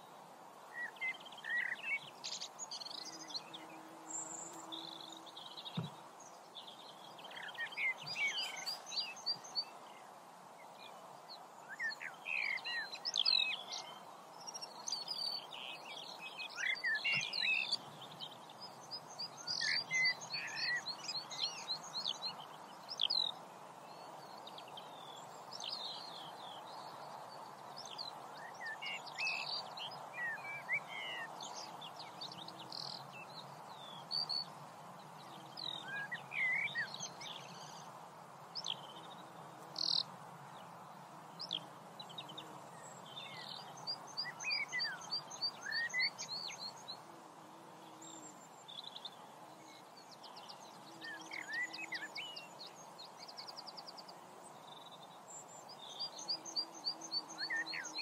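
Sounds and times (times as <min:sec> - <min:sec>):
small birds chirping and singing: 0:00.0 - 0:58.0
steady background hiss: 0:00.0 - 0:58.0.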